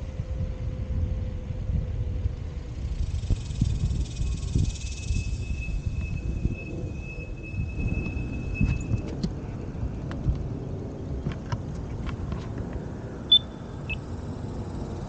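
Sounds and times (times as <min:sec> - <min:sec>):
wind rumble on microphone: 0:00.0 - 0:15.0
crosswalk button beeps: 0:13.3 - 0:14.0.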